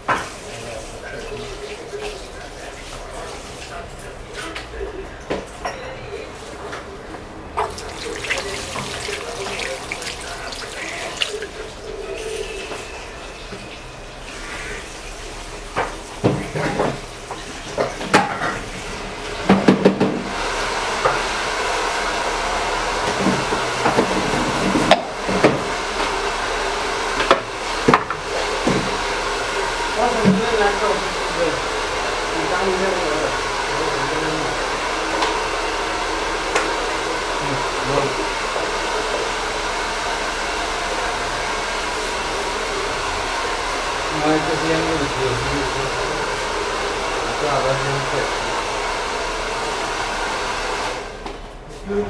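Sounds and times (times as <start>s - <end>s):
faint voices: 0.4s - 15.0s
hair dryer running: 7.6s - 12.1s, 15.6s - 51.4s.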